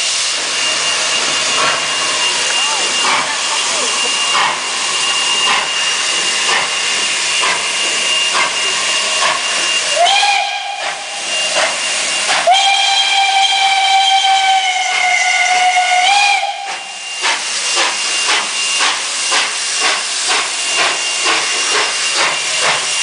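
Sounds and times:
steam hissing: 0.0 - 23.0
steam locomotive exhaust beat: 0.0 - 23.0
steam whistle blast: 5.0 - 18.8.

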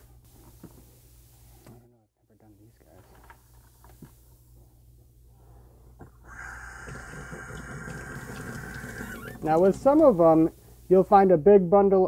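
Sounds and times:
faucet running into sink: 6.7 - 10.4.

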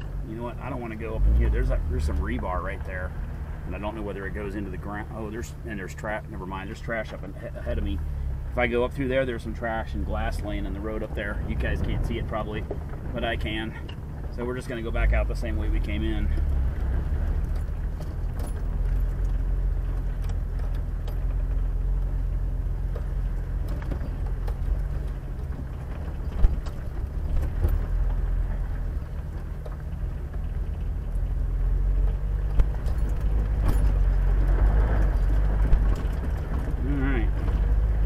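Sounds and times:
vehicle engine and road drone: 0.0 - 38.0
sharp knocks and rattles: 11.0 - 38.0.

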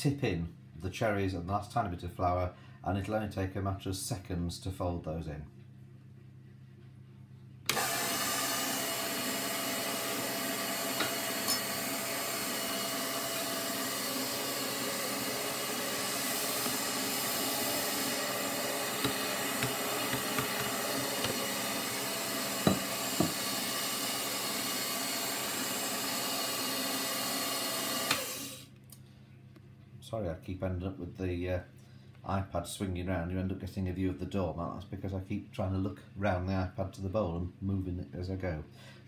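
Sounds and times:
stand mixer motor whirring: 7.7 - 28.6.

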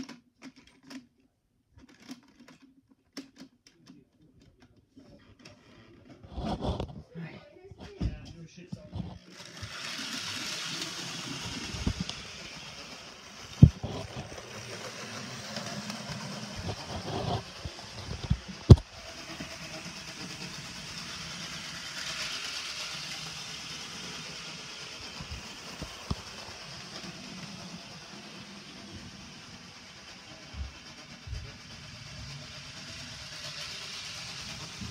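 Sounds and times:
model train motor whirring: 9.0 - 34.9
wheels clicking on track: 9.2 - 34.9.

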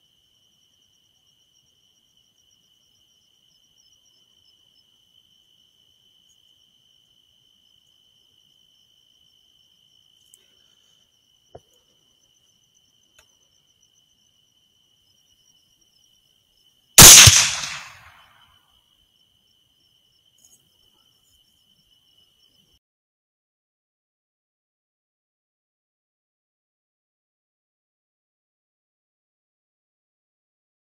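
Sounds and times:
crickets trilling: 0.0 - 22.8
rifle shot: 17.0 - 18.2.

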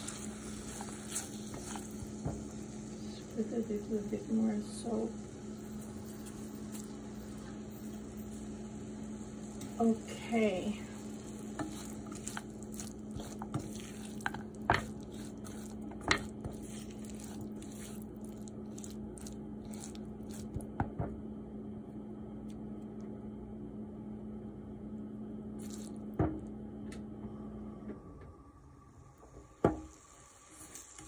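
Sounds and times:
spatula squishing food in pan: 0.0 - 3.3, 5.5 - 20.9, 25.6 - 26.2
steady low hum: 0.0 - 31.0.

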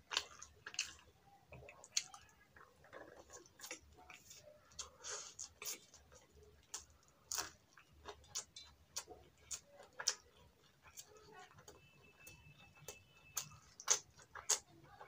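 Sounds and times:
man chewing food: 0.0 - 15.0.

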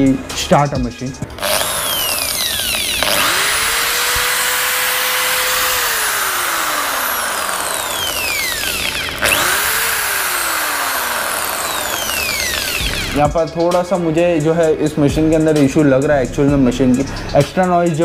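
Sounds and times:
corded drill motor whining: 1.3 - 13.3.

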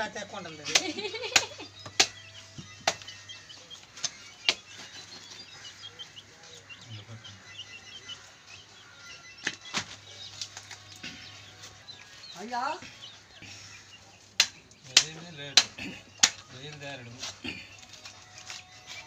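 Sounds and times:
small birds chirping: 0.0 - 19.0
knife chopping meat and bone: 0.7 - 4.9, 14.3 - 17.5.

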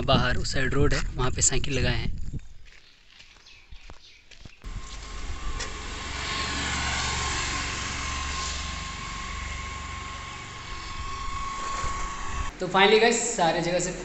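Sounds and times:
wind on microphone: 0.0 - 2.6, 10.6 - 12.5
bicycle tyres on dirt: 2.6 - 12.5.

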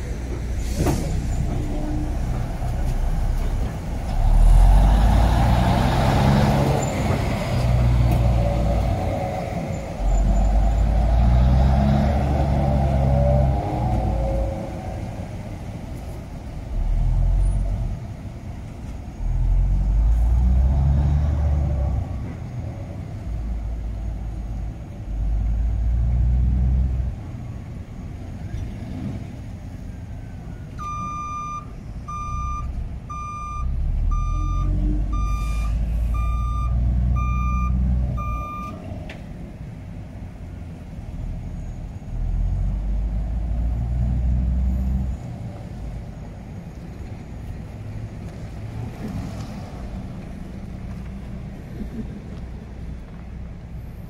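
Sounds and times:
diesel locomotive engine rumbling: 0.0 - 54.0
reversing alarm beeping: 30.8 - 38.8.

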